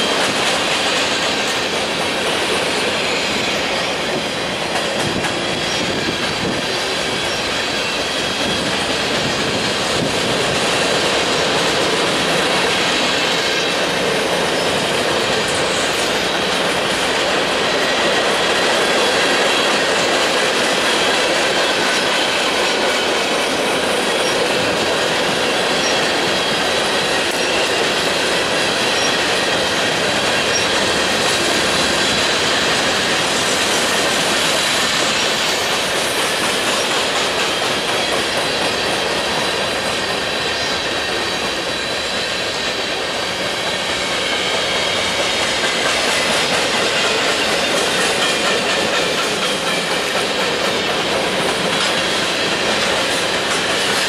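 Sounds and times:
steel wheels rolling on rail: 0.0s - 54.0s
high wheel squeal: 2.7s - 11.2s, 20.7s - 54.0s.

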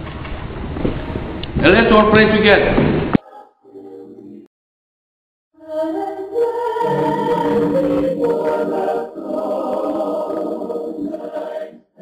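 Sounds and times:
choir singing held chords: 3.2s - 4.5s, 5.6s - 12.0s.

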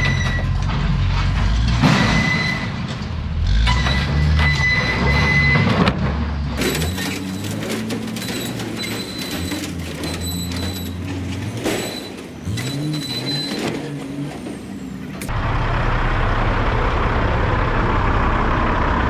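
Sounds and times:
diesel truck engine running: 6.3s - 19.0s.

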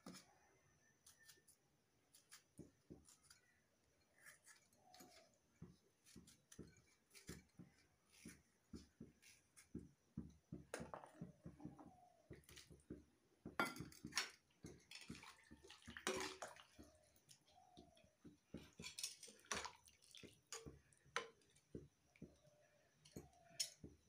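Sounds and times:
knife cutting tomato: 1.0s - 9.8s.

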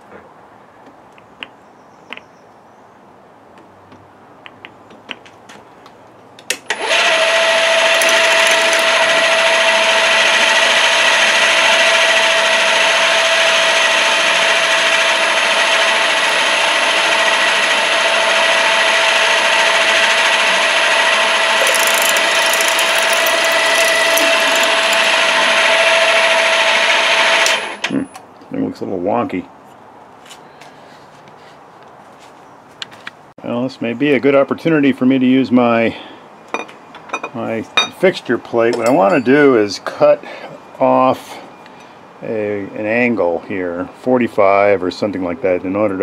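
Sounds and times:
drill boring into copper: 6.8s - 10.2s, 21.6s - 26.0s
milling machine spindle whine: 8.0s - 9.3s, 21.6s - 25.8s.

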